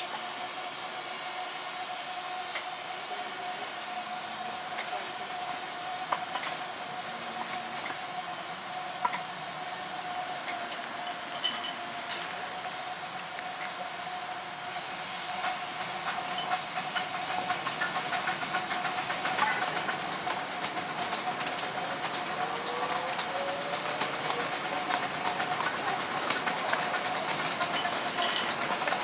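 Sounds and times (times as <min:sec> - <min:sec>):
steam train hissing: 0:00.0 - 0:29.0
wheels clicking on rails: 0:02.3 - 0:29.0.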